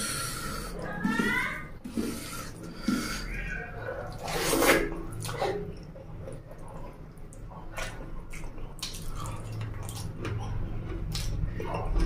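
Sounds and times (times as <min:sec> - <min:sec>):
sharp wet clicks: 0:07.1 - 0:11.5.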